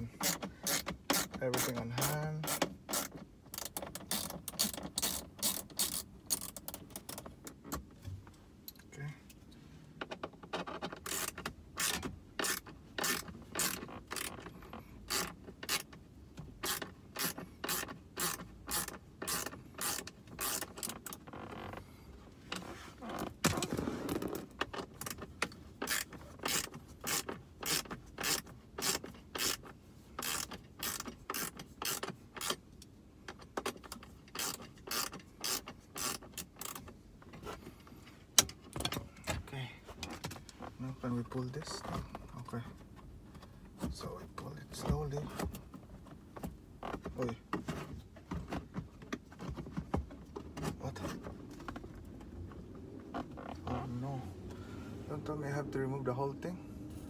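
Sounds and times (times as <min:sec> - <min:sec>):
hand ratchet clicking: 0:00.1 - 0:07.3, 0:10.6 - 0:16.0, 0:16.6 - 0:21.8, 0:24.7 - 0:36.9.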